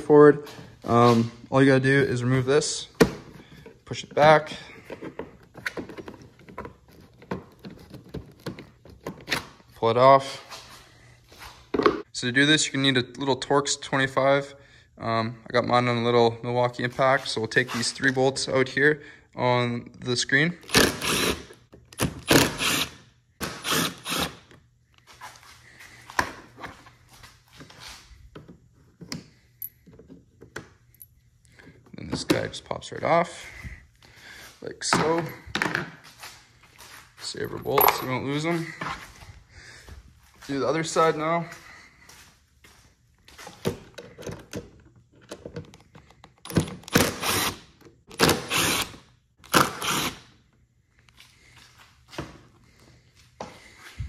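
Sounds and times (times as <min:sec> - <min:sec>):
impact driver bursts: 0:20.7 - 0:24.4, 0:46.9 - 0:50.3.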